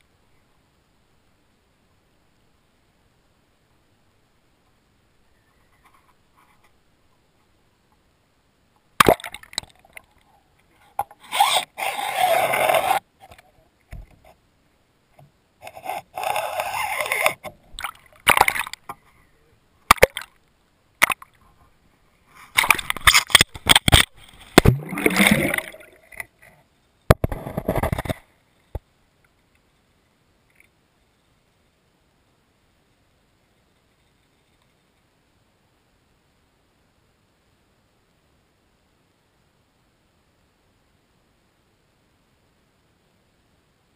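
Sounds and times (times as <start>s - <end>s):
water splashing and gurgling: 9.0s - 10.2s, 15.8s - 18.9s, 19.9s - 20.4s, 22.5s - 26.6s.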